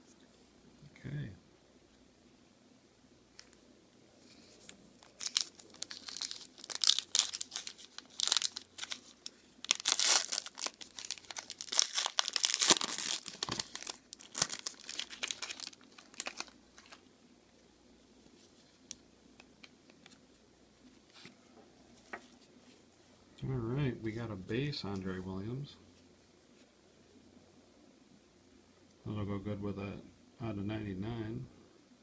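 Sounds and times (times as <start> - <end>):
foil wrapper tearing and crinkling: 5.0 - 17.0.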